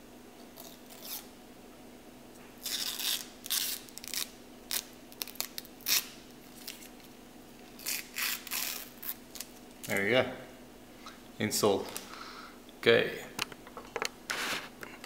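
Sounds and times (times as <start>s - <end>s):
faint steady hum: 0.0s - 15.0s
plastic film peeling: 2.6s - 10.1s, 14.3s - 14.8s.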